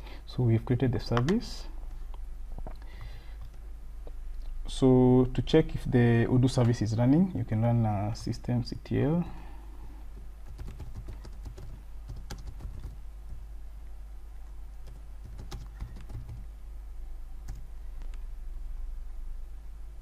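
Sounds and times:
steady low hum: 0.0 - 20.0
keyboard typing: 10.4 - 13.0, 14.8 - 16.5.

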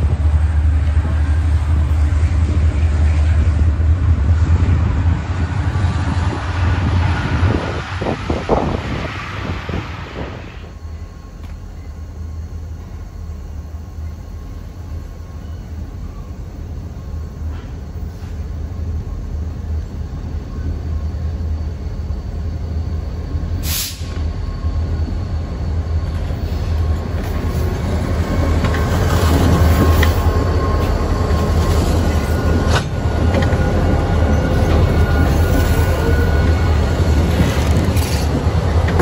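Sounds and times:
diesel locomotive engine rumble: 0.0 - 39.0
high wheel squeal: 23.7 - 38.4.

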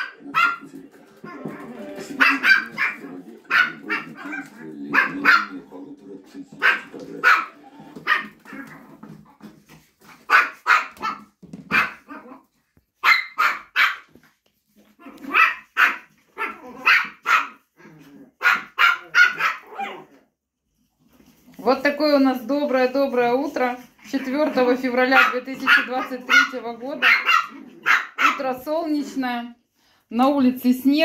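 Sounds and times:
puppies yapping: 0.0 - 5.5, 18.3 - 20.2, 25.1 - 28.4.

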